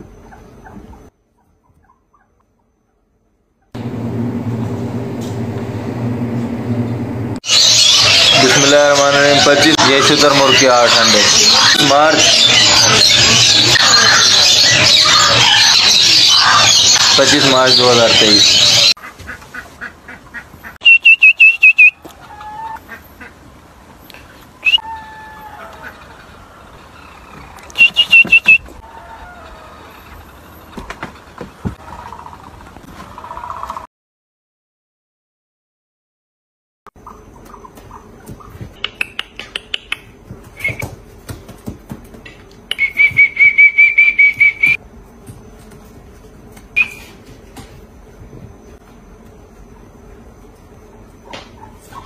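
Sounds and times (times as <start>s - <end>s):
low hum: 3.8s - 7.4s
chicks peeping and whistling: 7.4s - 18.9s, 20.8s - 22.8s, 24.6s - 25.0s, 27.0s - 30.3s, 37.0s - 41.0s, 42.7s - 44.8s, 46.7s - 47.2s
chicks peeping: 7.5s - 20.7s
loud quick chirps: 20.8s - 22.0s, 27.6s - 28.8s
thin held whistles: 20.8s - 22.0s, 27.7s - 28.6s, 42.7s - 44.8s, 46.8s - 47.2s.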